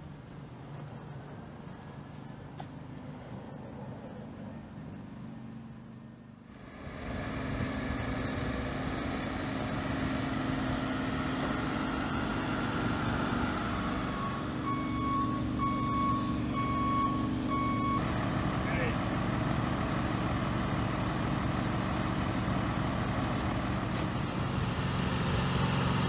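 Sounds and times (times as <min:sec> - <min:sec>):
truck engine running: 0:06.4 - 0:26.0
reversing alarm beeps: 0:14.0 - 0:18.0.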